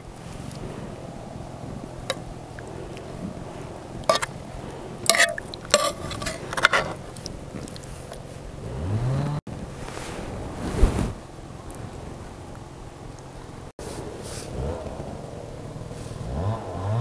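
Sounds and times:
metal spoon clinking on pot: 0:05.0 - 0:07.0.

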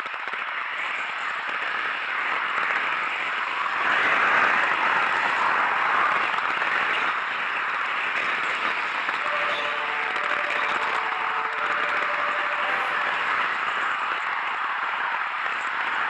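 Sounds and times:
faint thin steady tones: 0:08.4 - 0:14.2.

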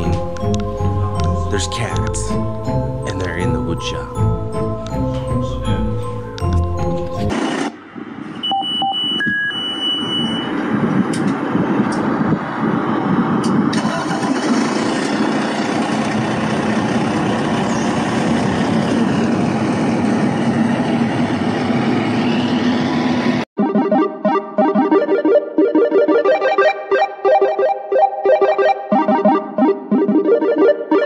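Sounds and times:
short beeps: 0:08.4 - 0:10.6
truck engine idling: 0:13.8 - 0:20.6.

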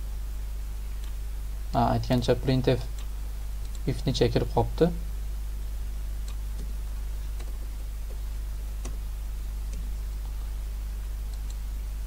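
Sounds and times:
steady low hum: 0:00.0 - 0:12.0
keyboard and mouse clicks: 0:08.8 - 0:09.0, 0:11.3 - 0:11.6.

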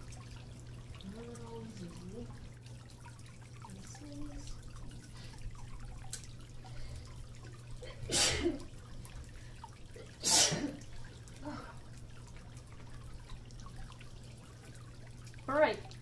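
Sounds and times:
person sneezing: 0:08.1 - 0:08.6, 0:10.2 - 0:10.8.

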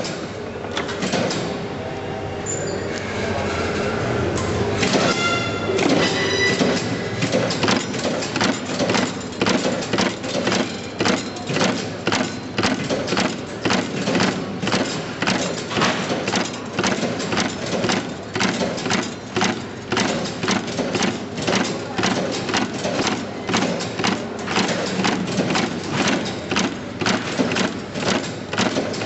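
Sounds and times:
crimping press clacking: 0:05.8 - 0:29.0.

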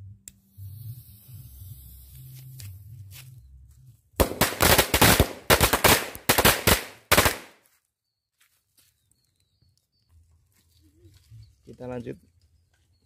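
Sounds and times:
firecrackers banging: 0:04.2 - 0:07.5.

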